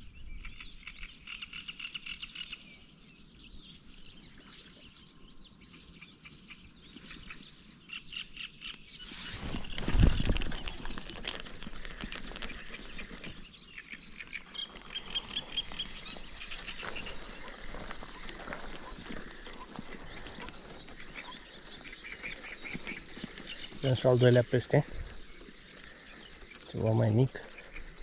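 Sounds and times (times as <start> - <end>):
birds chirping: 0.0 - 28.0
rustling and handling noise: 9.2 - 13.5, 14.1 - 28.0.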